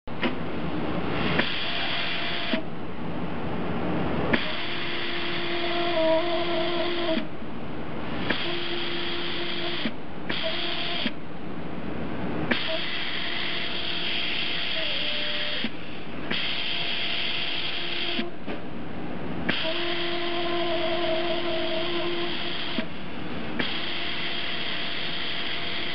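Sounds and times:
hot-air blower hissing: 1.1 - 2.6, 4.3 - 7.3, 8.1 - 11.2, 12.5 - 18.3, 19.5 - 25.9.

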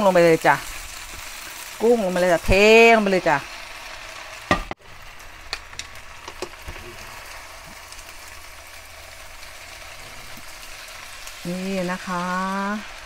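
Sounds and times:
food sizzling in a frying pan: 0.0 - 13.0
wooden utensils knocking on pan: 4.5 - 4.8.

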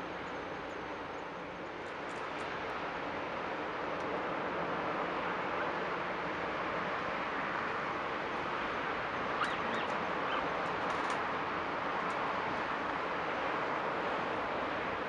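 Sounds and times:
bird chirps: 9.4 - 10.5.

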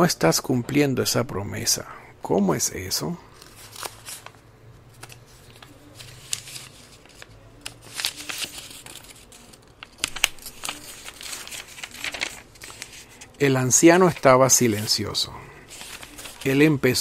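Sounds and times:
soft rustling: 3.4 - 13.4, 15.6 - 16.7.

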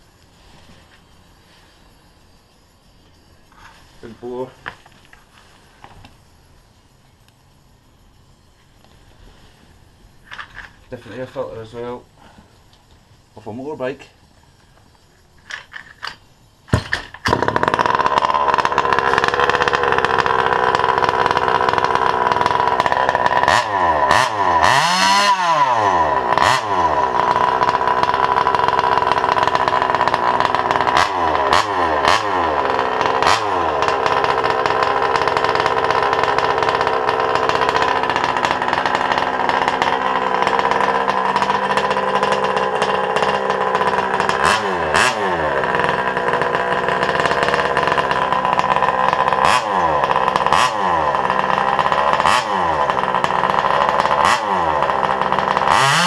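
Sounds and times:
two-stroke engine idling and revving: 16.8 - 56.0.

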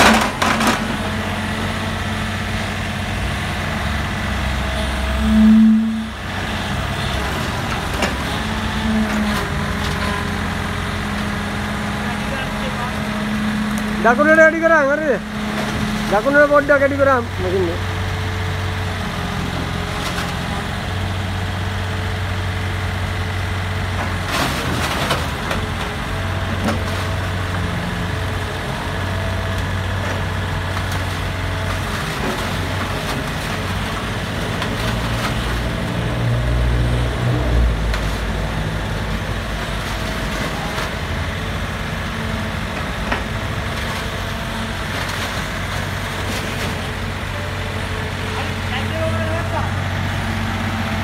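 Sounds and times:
metallic clanks of tracks and bucket: 0.0 - 1.3, 4.7 - 10.5, 23.8 - 49.8
excavator diesel engine running: 0.0 - 51.0.

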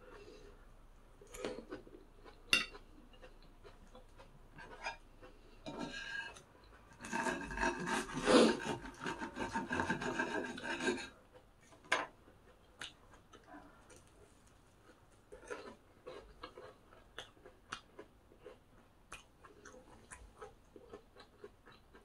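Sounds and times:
knife sawing through breaded cutlet: 7.0 - 11.1.

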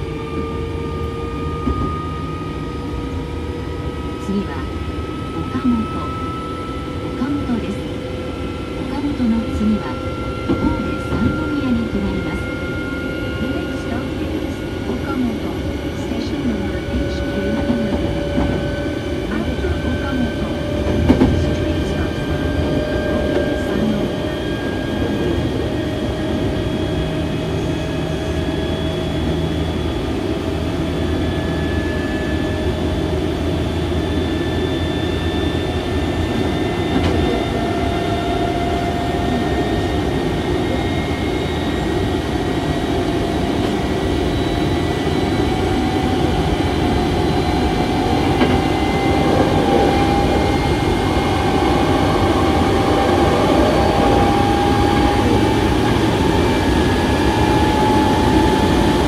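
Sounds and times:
train wheels rumbling on rail: 8.9 - 28.1, 32.8 - 59.0
motor whine rising in pitch: 37.7 - 59.0.

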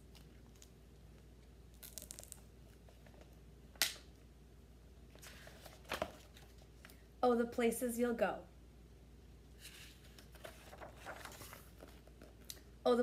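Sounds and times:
book pages turning: 5.1 - 6.9, 9.6 - 12.5.

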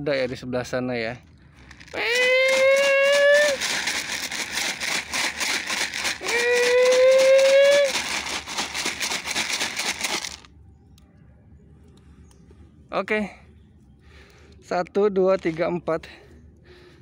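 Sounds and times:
dry food rattling in container: 1.6 - 10.5.

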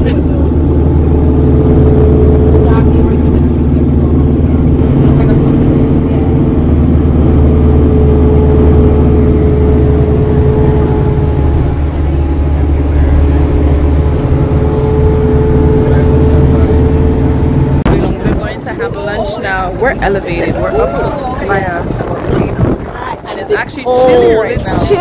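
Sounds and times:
vehicle engine droning: 0.0 - 25.0.

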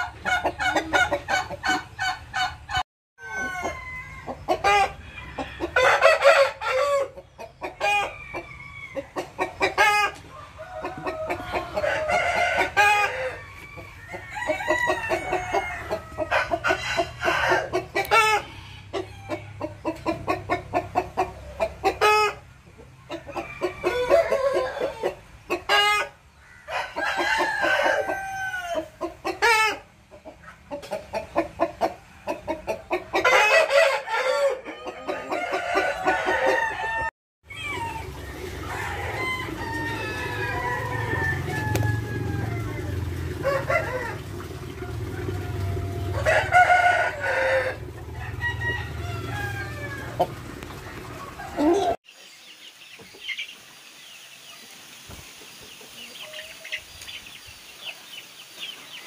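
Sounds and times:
chickens clucking: 0.0 - 59.0
rooster crowing: 3.2 - 7.2, 7.8 - 9.1, 9.9 - 19.5, 23.3 - 25.1, 26.4 - 28.9, 33.2 - 50.4.

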